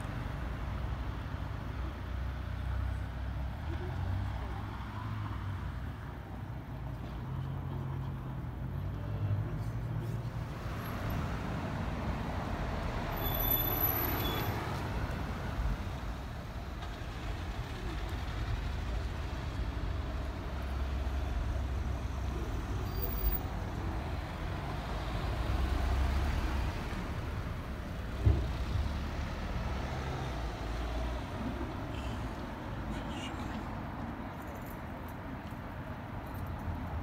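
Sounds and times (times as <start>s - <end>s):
vehicles passing with low rumble: 0.0s - 37.0s.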